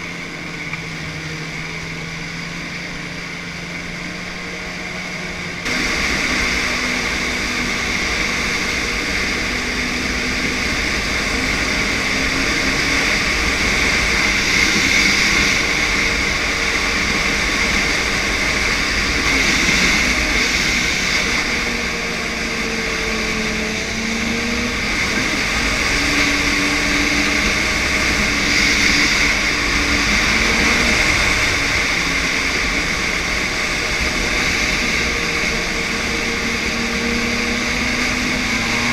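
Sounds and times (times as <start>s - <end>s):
sled moving over snow: 0.0s - 38.9s
snowmobile engine running: 0.0s - 38.9s.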